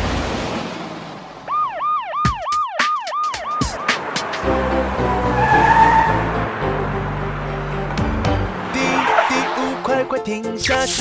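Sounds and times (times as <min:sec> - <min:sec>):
cartoon police siren yelping: 0:01.5 - 0:04.0
music: 0:02.1 - 0:11.0.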